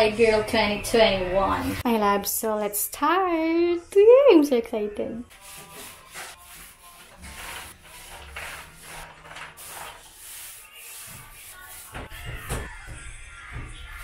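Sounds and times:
paint rubbing strokes on wall: 5.3s - 14.0s.

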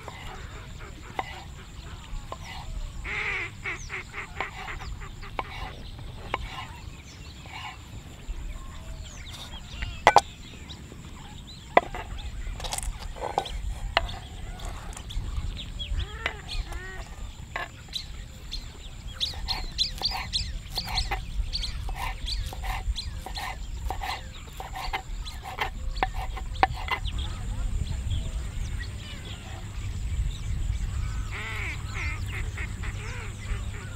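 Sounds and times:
birds chirping: 0.0s - 33.9s
knife knocking on wooden board: 9.4s - 10.2s, 11.8s - 14.8s.

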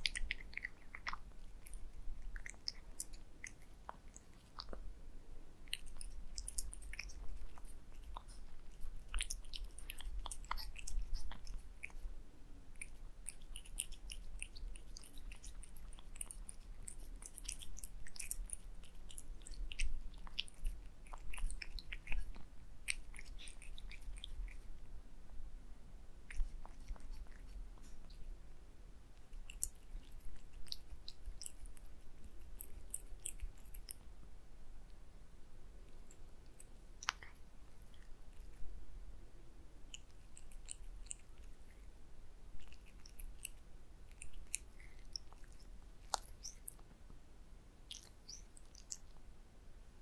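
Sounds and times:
cat chewing and licking food: 0.0s - 25.4s, 26.1s - 35.0s, 35.7s - 38.8s, 39.6s - 47.2s, 47.8s - 49.3s.

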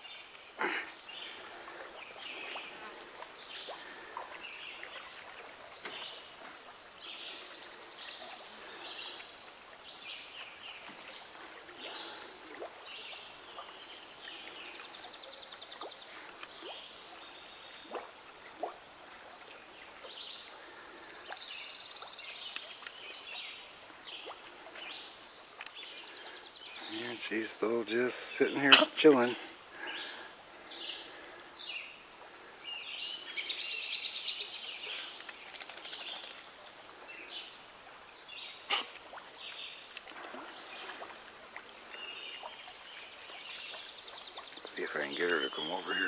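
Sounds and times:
birds singing in chorus: 19.4s - 46.0s.

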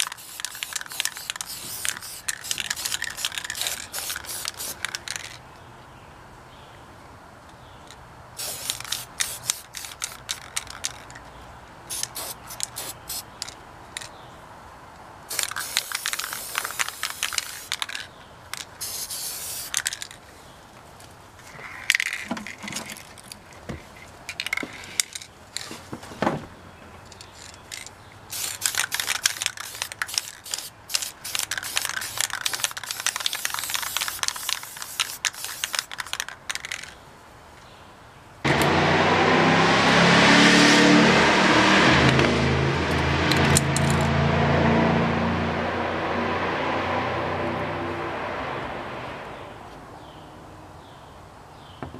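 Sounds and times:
spray paint can hissing: 0.0s - 5.4s, 8.4s - 11.1s, 11.9s - 13.6s, 15.3s - 20.2s, 28.3s - 36.9s.

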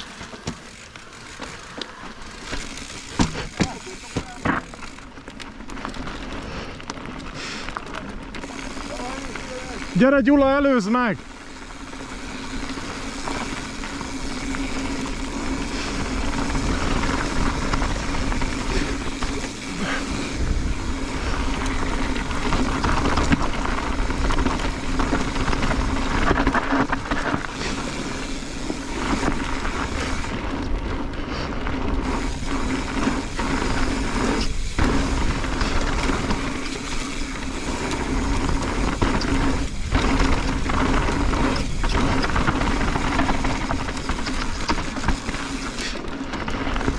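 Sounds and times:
bike knocking over bumps: 0.0s - 5.2s, 31.9s - 46.9s
tyre and wind rushing: 11.4s - 46.9s.

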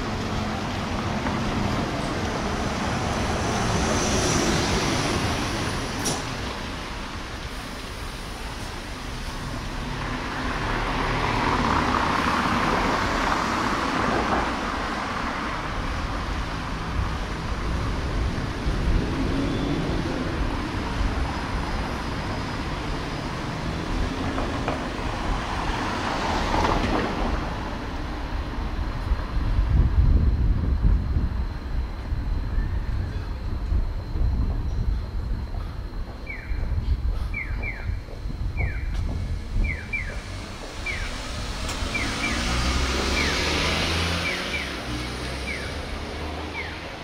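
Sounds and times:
steady hum of road traffic: 0.0s - 47.0s
car passing: 9.1s - 31.1s, 38.6s - 47.0s.

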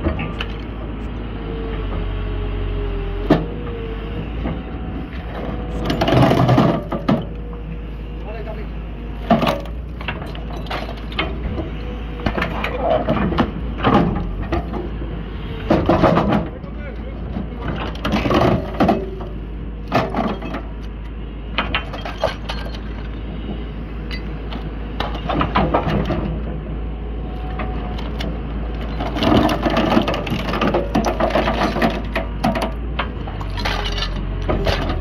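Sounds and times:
excavator low drone: 0.0s - 35.0s
metal cracking and crunching: 28.0s - 35.0s.

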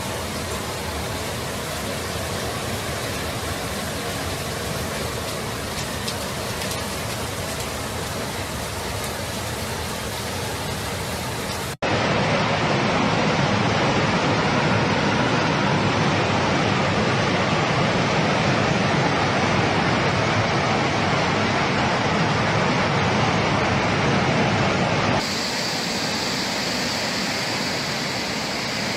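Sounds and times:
water cascading down stone steps: 0.0s - 11.8s, 25.2s - 28.9s
floodwater rushing: 0.0s - 28.9s.

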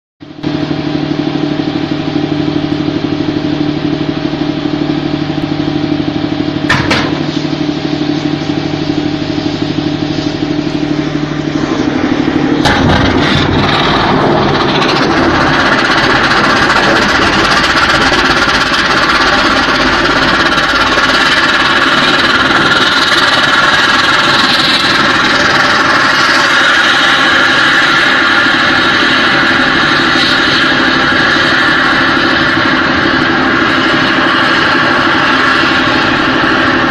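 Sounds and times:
engine humming: 0.2s - 36.9s
rocket motor roaring: 0.2s - 36.9s
sudden blast: 9.8s - 22.8s.

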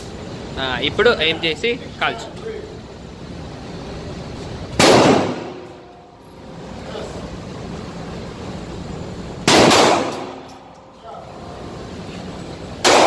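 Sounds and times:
pistol shot ringing indoors: 4.8s - 6.0s, 9.4s - 10.8s.

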